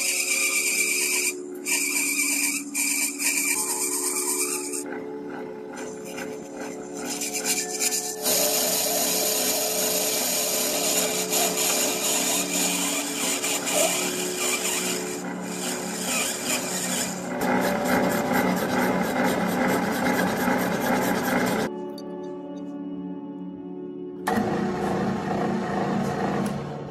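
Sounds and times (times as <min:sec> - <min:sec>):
cutting tool scraping metal rod: 0:00.0 - 0:04.9, 0:05.8 - 0:21.7
metal lathe motor hum: 0:00.0 - 0:21.7
hand file rasping on metal: 0:05.8 - 0:21.7.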